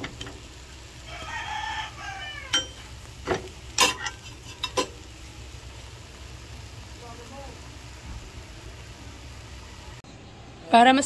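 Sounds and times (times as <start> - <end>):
metal spatula scraping a frying pan: 2.5 - 5.0.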